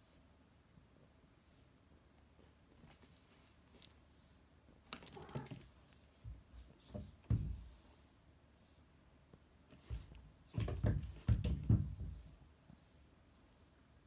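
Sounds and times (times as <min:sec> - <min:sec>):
cat thumping on wooden floor: 0:09.8 - 0:12.3.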